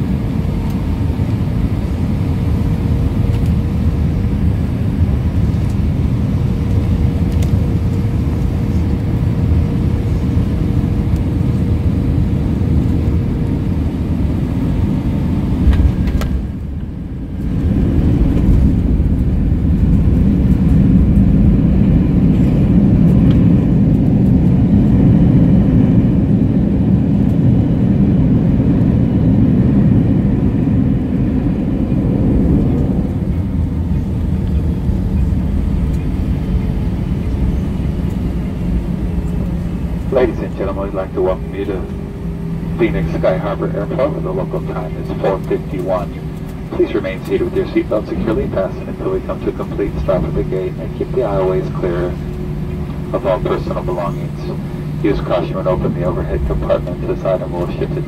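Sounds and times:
aircraft engine hum in cabin: 0.0 - 58.0
deep rumble of landing roll: 15.2 - 23.6
wheels thumping on runway: 15.6 - 18.8.

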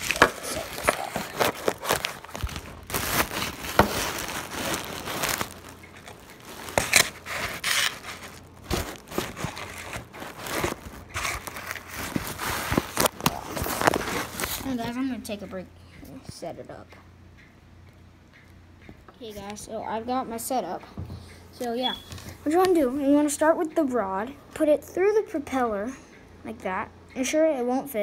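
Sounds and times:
rustling and crinkling: 0.0 - 15.5.

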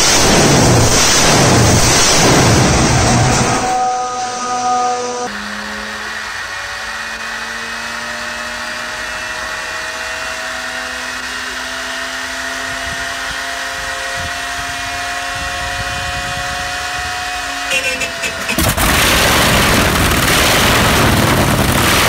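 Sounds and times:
aircraft engine starter whining: 18.0 - 20.4.

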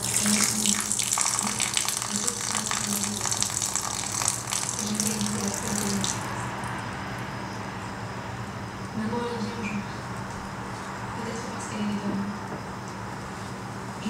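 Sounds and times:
tap water running and splashing: 0.0 - 6.4.

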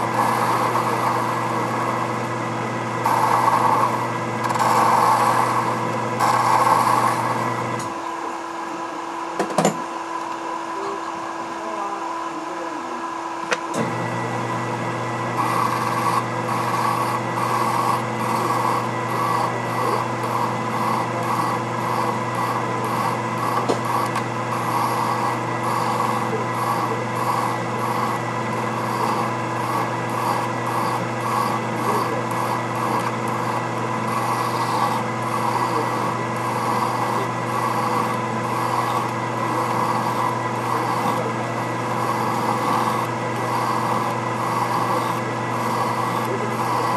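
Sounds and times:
lathe motor hum: 0.0 - 46.9
hand file rasping on steel: 15.4 - 46.9.

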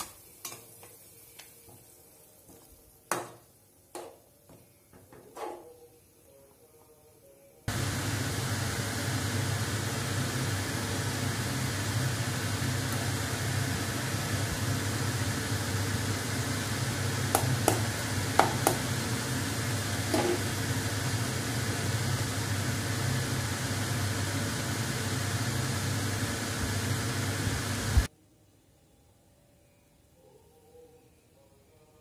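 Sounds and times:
machine hum: 7.7 - 28.1.

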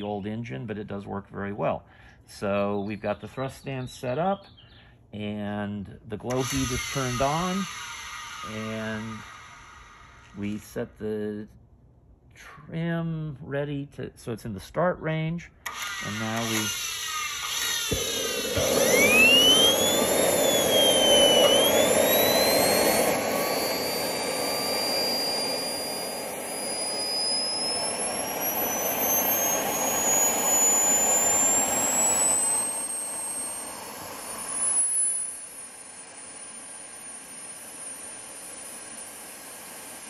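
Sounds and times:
turbojet engine spooling up: 6.3 - 10.7, 15.6 - 40.0.

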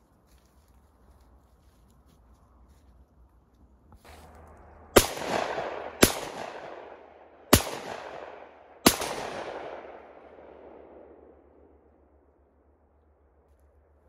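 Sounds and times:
shotgun shots with echo: 4.9 - 11.3.

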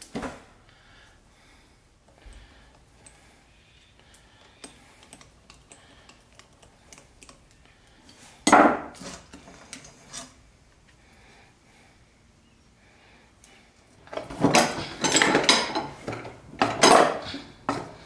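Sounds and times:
metal parts clattering: 14.1 - 17.4
hand tools clinking on metal: 14.1 - 17.9.

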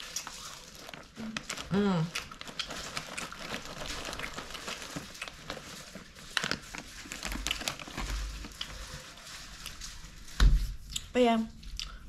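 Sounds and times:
plastic snack bag crinkling: 0.0 - 11.0.

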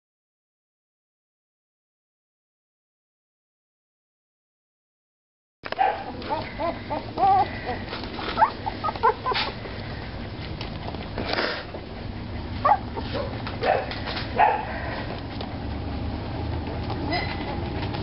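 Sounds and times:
puppies yipping and whimpering: 5.8 - 10.5, 11.7 - 15.0.

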